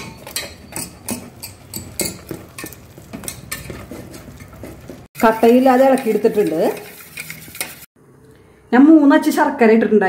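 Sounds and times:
whisk scraping metal bowl: 0:00.0 - 0:07.9.

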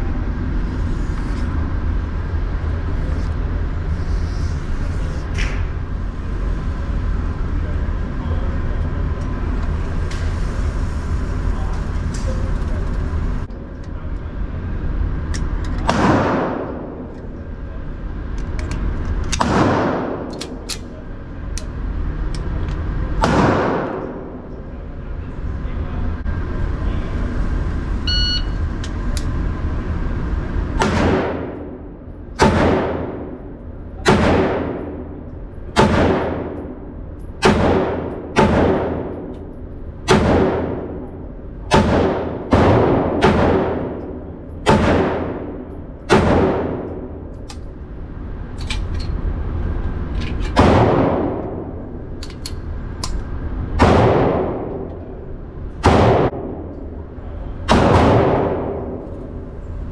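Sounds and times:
low hum: 0:00.0 - 0:59.9
pistol shots echoing: 0:19.4 - 0:20.7, 0:37.4 - 0:39.2, 0:41.7 - 0:46.9, 0:57.7 - 0:59.0
electronic timer beep: 0:28.0 - 0:28.6.

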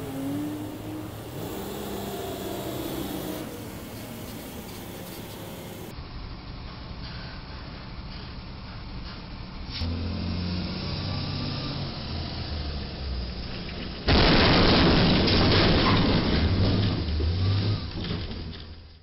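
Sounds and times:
truck engine running: 0:00.0 - 0:10.2
truck crashing into bridge: 0:13.5 - 0:18.8.

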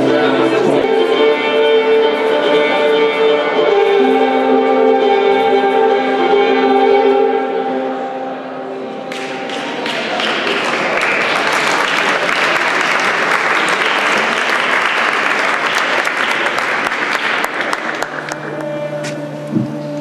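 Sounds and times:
music: 0:00.0 - 0:20.0
audience applauding: 0:09.1 - 0:18.8.

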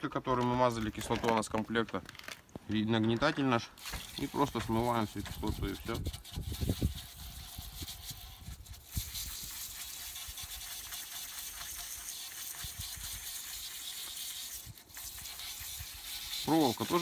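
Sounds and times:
pressure sprayer hissing: 0:06.7 - 0:17.0.

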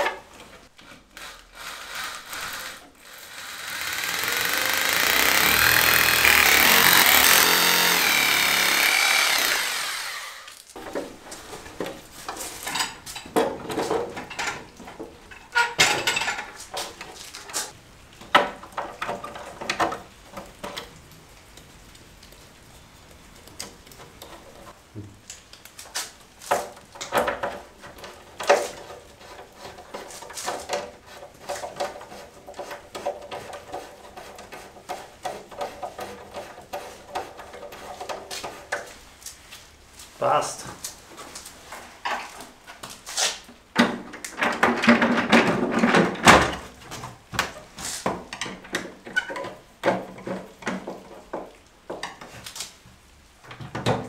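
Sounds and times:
power drill boring into wall: 0:01.2 - 0:10.6.

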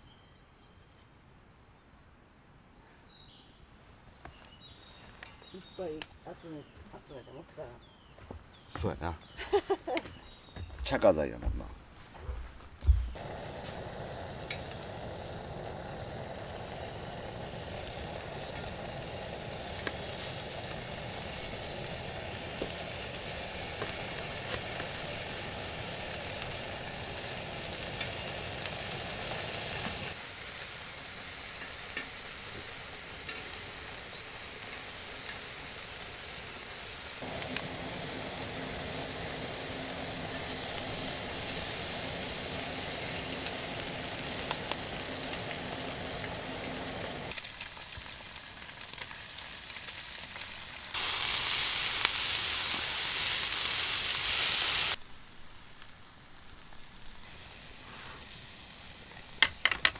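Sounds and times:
meat sizzling on a griddle: 0:13.2 - 0:59.9.

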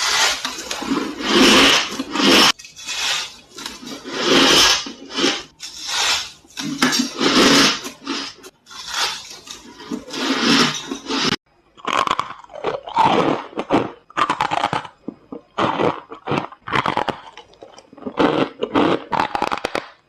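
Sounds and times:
crunchy ice chewing: 0:11.8 - 0:19.9.

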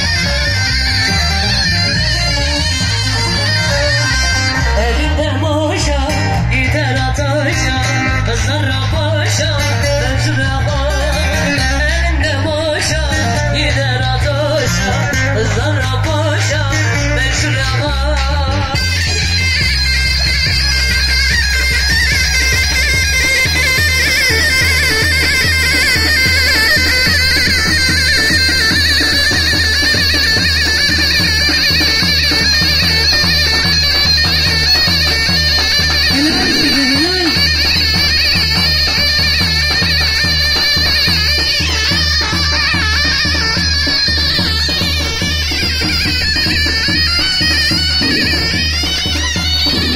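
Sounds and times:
shrill reed melody: 0:00.0 - 0:05.7, 0:18.7 - 0:49.9
bass line: 0:00.0 - 0:45.6
drum beat: 0:18.8 - 0:49.9.

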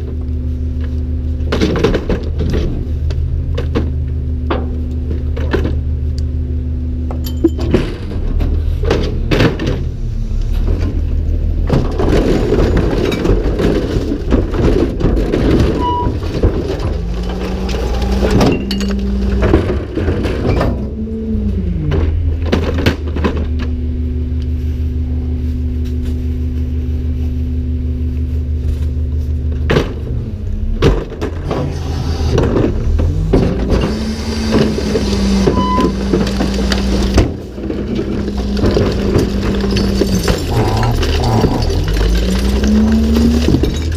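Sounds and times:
garbage truck engine: 0:00.0 - 0:43.9
carts banging against hopper: 0:01.5 - 0:05.9, 0:07.1 - 0:10.0, 0:10.6 - 0:21.0, 0:29.6 - 0:43.9
rattle of material falling: 0:34.6 - 0:43.9.

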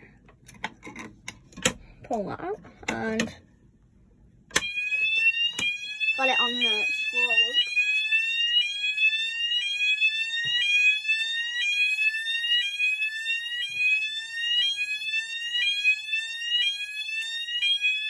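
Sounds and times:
fire alarm rising sweep tone: 0:04.6 - 0:18.0.

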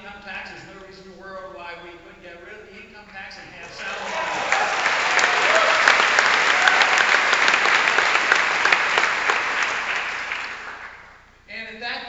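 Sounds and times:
audience applauding: 0:03.6 - 0:11.2.

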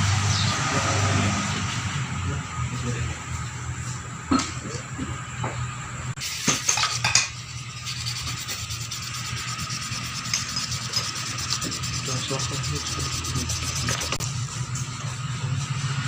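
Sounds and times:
rag wiping engine part: 0:06.2 - 0:14.4
low hum: 0:07.2 - 0:16.0.

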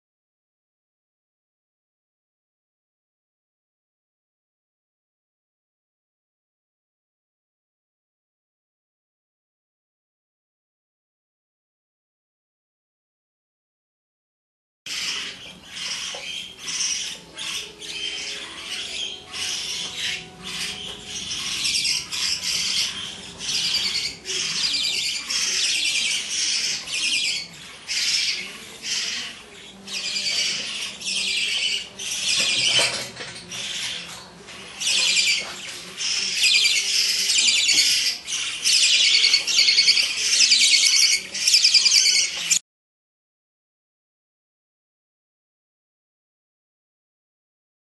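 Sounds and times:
budgerigars calling: 0:14.9 - 0:42.6.

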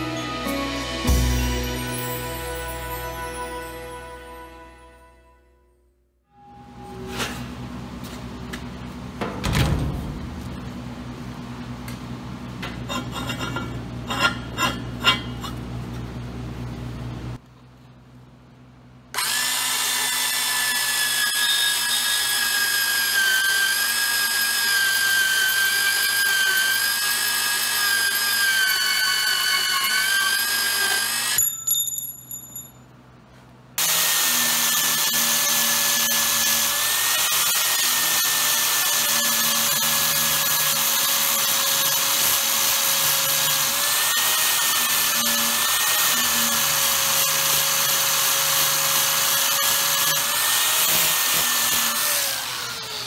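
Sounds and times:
angle grinder grinding steel: 0:12.7 - 0:15.6, 0:19.2 - 0:31.4, 0:33.8 - 0:53.0
band saw cutting steel pipe: 0:12.7 - 0:15.6, 0:19.2 - 0:31.4, 0:33.8 - 0:53.0.

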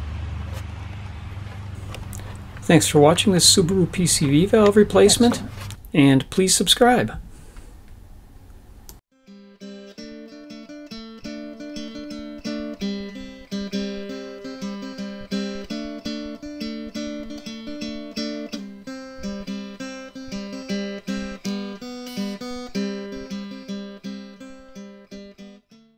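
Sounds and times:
acoustic guitar plucked and strummed: 0:01.8 - 0:05.8, 0:09.2 - 0:25.9.

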